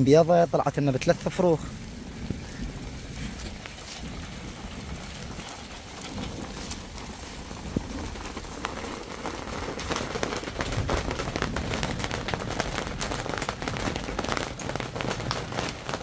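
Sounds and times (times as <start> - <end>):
steady rain falling: 0.0 - 16.0.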